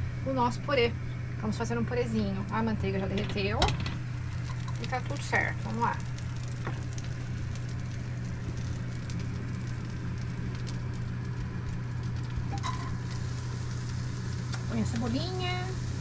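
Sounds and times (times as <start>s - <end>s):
steady low hum: 0.0s - 16.0s
food sizzling in butter: 4.1s - 16.0s.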